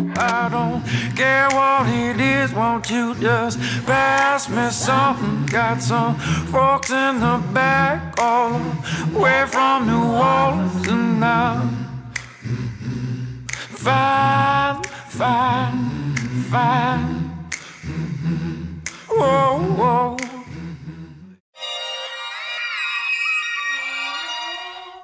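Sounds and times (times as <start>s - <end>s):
low drone: 0.0s - 9.3s
solo voice singing: 0.0s - 12.1s, 13.7s - 20.7s.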